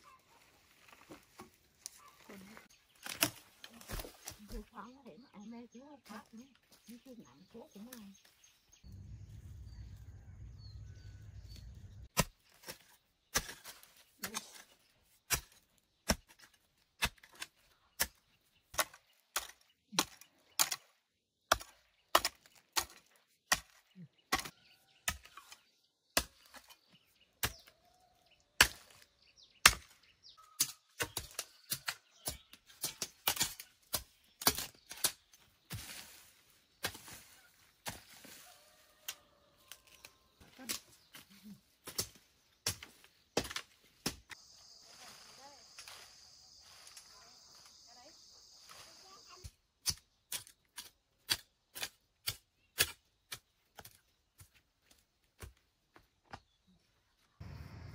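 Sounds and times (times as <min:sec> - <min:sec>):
low rumble: 0:08.9 - 0:12.1, 0:57.4 - 0:57.9.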